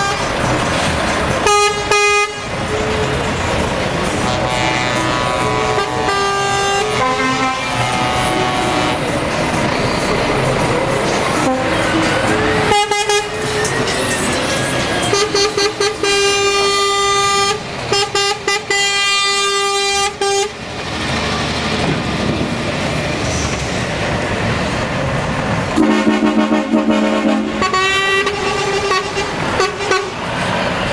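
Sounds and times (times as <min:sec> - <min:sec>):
truck air horn: 0:00.0 - 0:00.4, 0:01.4 - 0:03.3, 0:04.0 - 0:09.2, 0:11.3 - 0:13.7, 0:15.0 - 0:20.6, 0:25.8 - 0:30.3
diesel engines rumbling: 0:00.0 - 0:30.9
road noise: 0:00.0 - 0:30.9.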